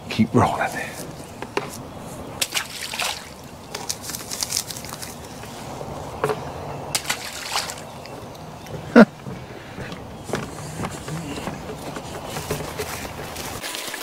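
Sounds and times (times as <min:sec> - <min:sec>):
footsteps on wooden boards: 0:01.0 - 0:01.9, 0:06.2 - 0:13.8
water sloshing and splashing: 0:01.1 - 0:10.2, 0:10.8 - 0:14.0.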